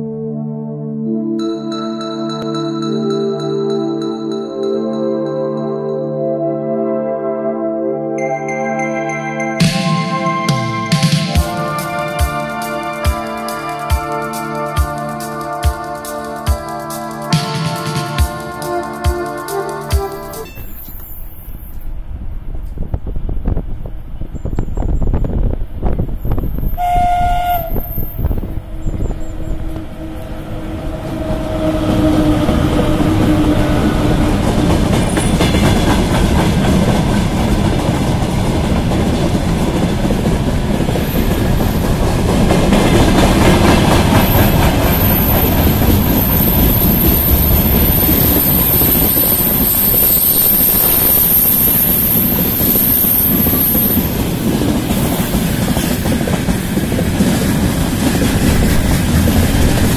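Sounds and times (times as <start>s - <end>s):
locomotive horn blast: 10.0s - 21.0s, 26.7s - 35.2s
freight wagons rumbling past: 27.7s - 59.9s
wheel clatter on rails: 53.3s - 59.9s.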